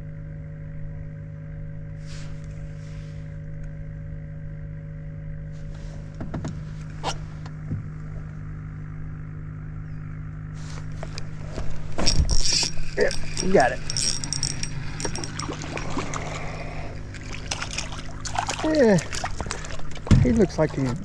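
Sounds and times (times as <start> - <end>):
small motor humming: 7.4 - 20.1.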